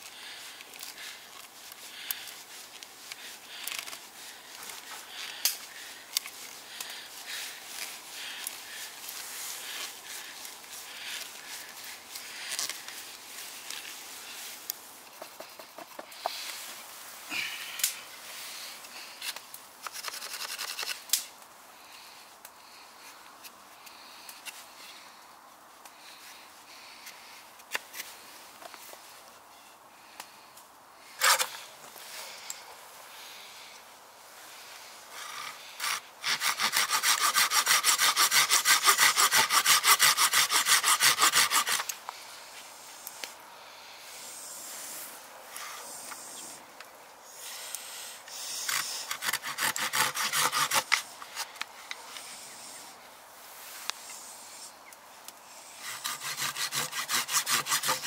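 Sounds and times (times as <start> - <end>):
knife scraping wood: 19.2 - 21.0, 31.2 - 31.6, 35.8 - 41.9, 48.3 - 51.6, 55.8 - 58.0
hand saw cutting wood: 19.8 - 21.1, 31.2 - 31.5, 35.8 - 41.9, 48.3 - 51.5, 55.7 - 58.0.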